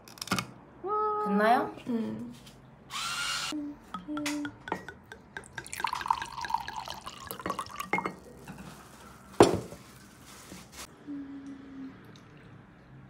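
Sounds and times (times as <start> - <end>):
glassware clinking: 3.9 - 8.6
liquid dripping and pouring: 4.8 - 9.1.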